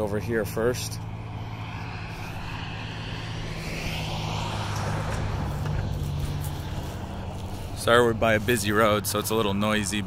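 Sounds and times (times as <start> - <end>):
steady low traffic hum: 0.0 - 10.0
vehicle passing: 0.0 - 10.0.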